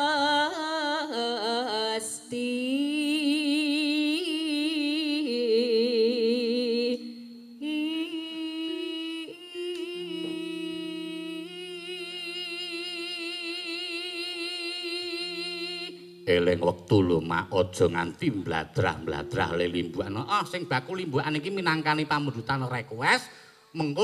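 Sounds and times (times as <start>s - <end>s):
woman singing into microphone: 0.0s - 16.2s
low held note: 7.0s - 21.9s.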